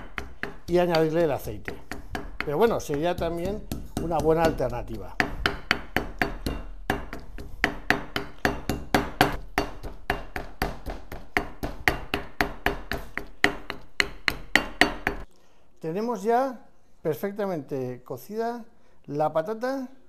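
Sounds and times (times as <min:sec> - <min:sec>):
pestle pounding in a mortar: 0:00.0 - 0:15.2.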